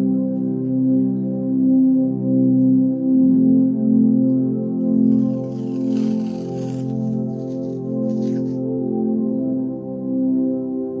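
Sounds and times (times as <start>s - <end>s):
soft ambient music: 0.0s - 11.0s
masking tape rustling: 5.0s - 8.6s.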